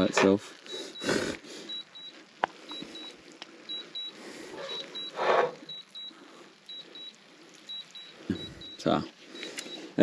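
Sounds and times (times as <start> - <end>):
drone beeping: 0.9 - 10.0
spatula scraping a frying pan: 4.5 - 5.7.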